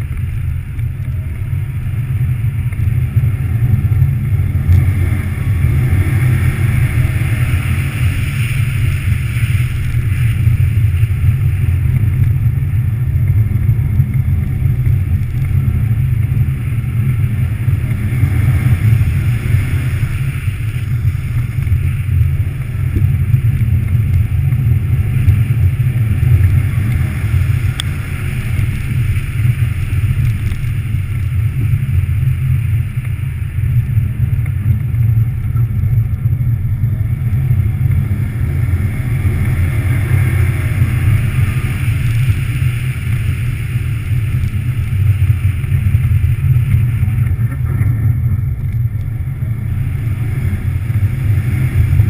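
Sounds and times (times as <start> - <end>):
car engine running hard: 0.0 - 52.0
tyre and road noise: 0.0 - 52.0.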